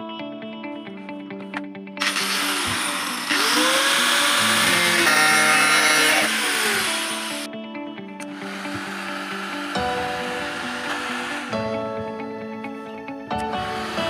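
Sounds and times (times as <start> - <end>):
guitar music: 0.0 - 14.0
grinder sanding plastic pipe: 2.0 - 7.5, 8.2 - 11.6.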